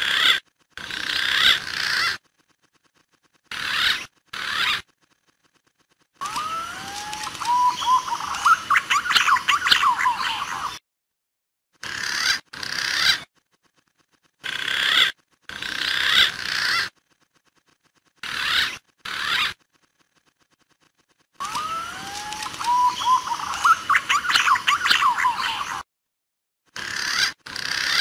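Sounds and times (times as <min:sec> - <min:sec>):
wavering bird whistles: 0:06.2 - 0:10.8, 0:21.4 - 0:25.8.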